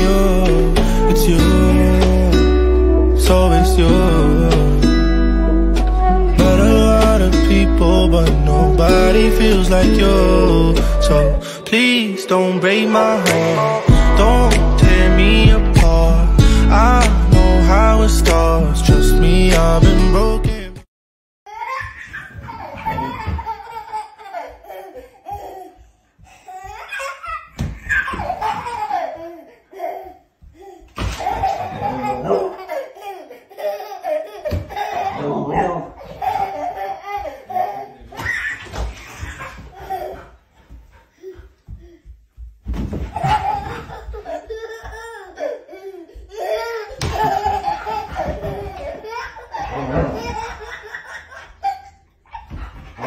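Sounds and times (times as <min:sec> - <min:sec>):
baby laughing: 0:04.3 - 0:15.9, 0:21.5 - 0:25.8, 0:26.4 - 0:40.4, 0:43.0 - 0:53.0.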